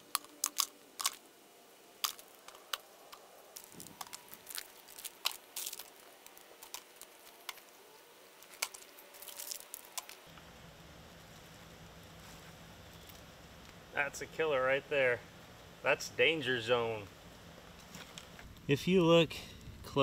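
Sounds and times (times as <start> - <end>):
plastic trash being handled: 2.0 - 7.8
footsteps on dry leaves and rubble: 2.0 - 10.4, 11.2 - 13.7.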